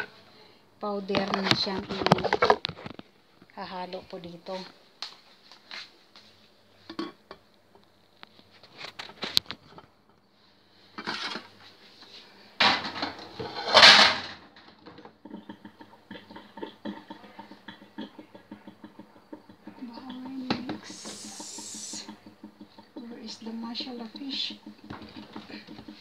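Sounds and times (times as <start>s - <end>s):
noisy bursts: 20.8s - 22.1s.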